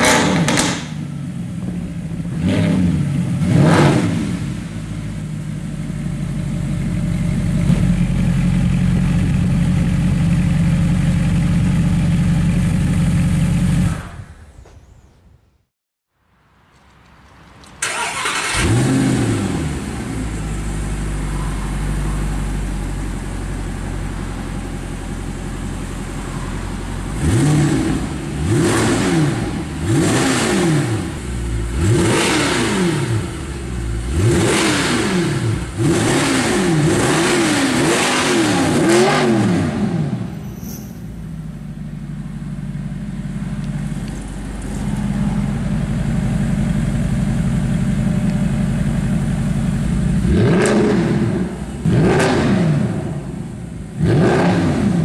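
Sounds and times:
car engine idling: 0:00.0 - 0:02.4, 0:04.5 - 0:13.9, 0:19.4 - 0:30.2, 0:30.8 - 0:32.2, 0:39.8 - 0:52.1
car engine starting and revving: 0:00.0 - 0:06.0, 0:17.8 - 0:55.0.

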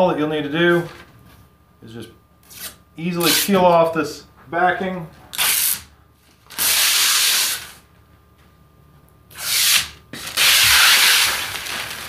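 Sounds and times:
plastic film peeling: 0:09.3 - 0:12.0.

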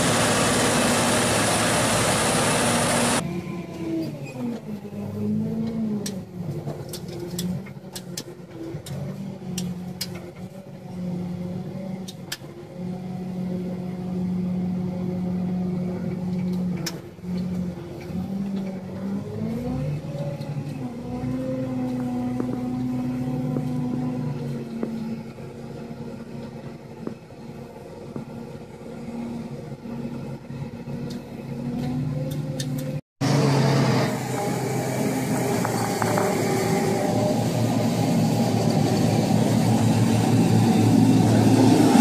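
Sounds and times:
machine engine changing speed: 0:00.0 - 0:03.2, 0:33.2 - 0:42.0.

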